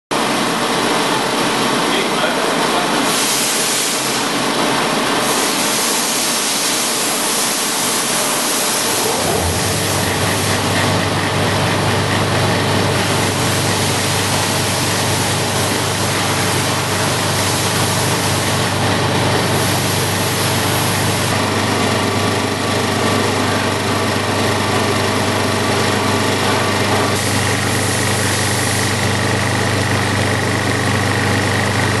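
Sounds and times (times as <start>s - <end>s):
low motor hum: 8.8s - 32.0s.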